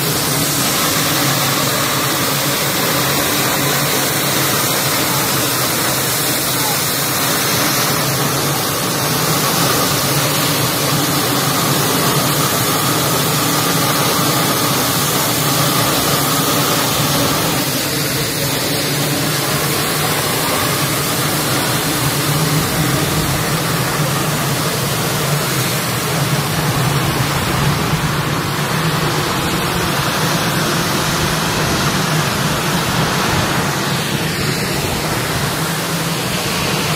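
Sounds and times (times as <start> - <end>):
rush of air: 0.0 - 36.9.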